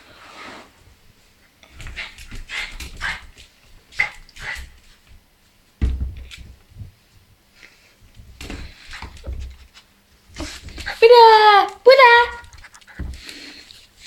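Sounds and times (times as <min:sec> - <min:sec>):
thump: 0:05.8 - 0:06.4.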